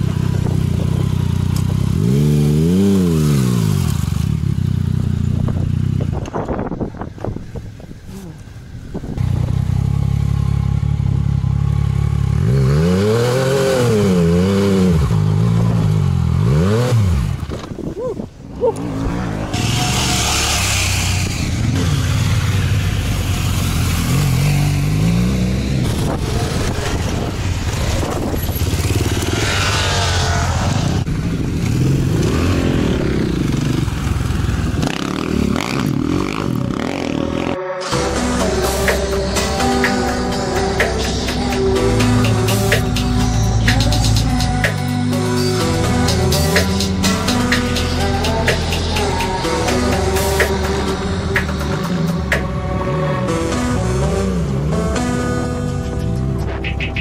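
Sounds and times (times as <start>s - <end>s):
motorcycle engine revving: 0.0s - 17.9s, 18.5s - 57.0s.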